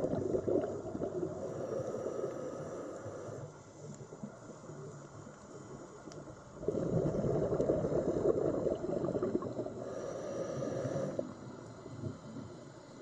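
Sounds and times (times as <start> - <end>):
scuba diver exhaling bubbles: 0.0 - 1.5, 6.6 - 9.8.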